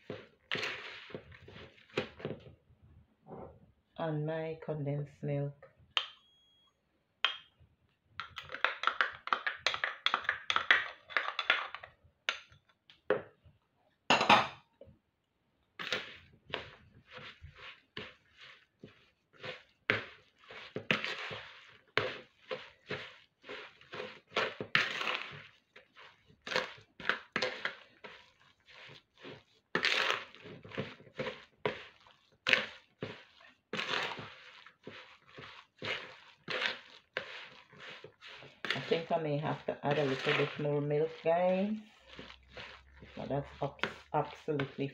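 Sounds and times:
batter squelching in plastic bowl: 0.0 - 2.8, 15.7 - 44.9.

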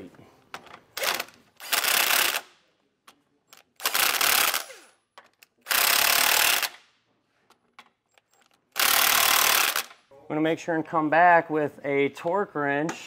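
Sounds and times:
impact wrench hammering: 3.8 - 6.9, 8.1 - 10.0.

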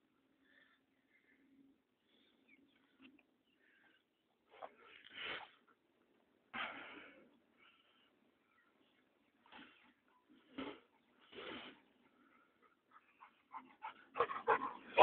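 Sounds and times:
dogs breathing hard and snuffling: 10.9 - 15.0.

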